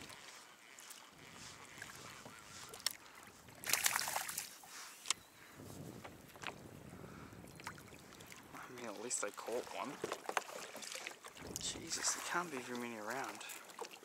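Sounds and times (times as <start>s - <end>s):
water splashing: 0.0s - 4.8s, 7.6s - 14.0s
water lapping against kayak hull: 0.0s - 5.1s, 5.8s - 14.0s.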